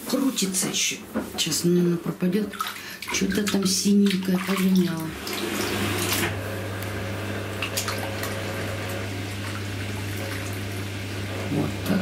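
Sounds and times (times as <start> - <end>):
water pouring and splashing: 2.5 - 6.3, 7.6 - 10.9.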